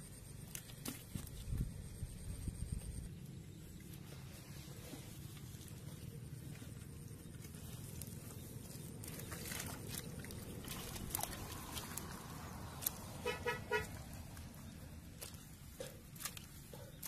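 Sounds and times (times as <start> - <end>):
hands scraping gritty soil: 3.7 - 17.0.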